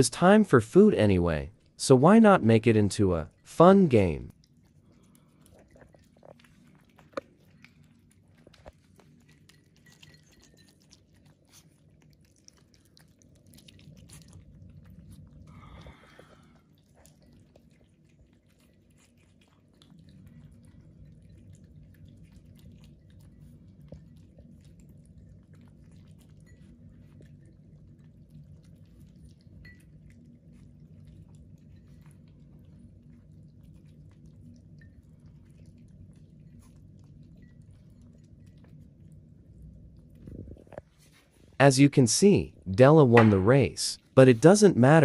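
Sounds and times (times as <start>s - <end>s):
puppies crunching kibble: 0.8s - 45.0s.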